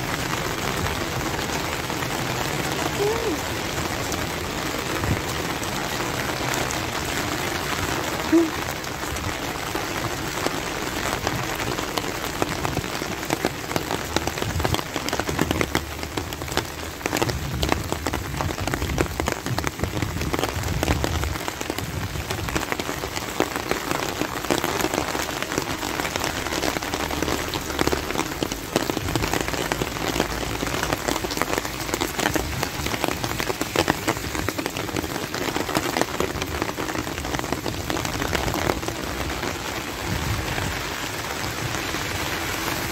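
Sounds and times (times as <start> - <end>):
rain on pavement: 0.0 - 42.9.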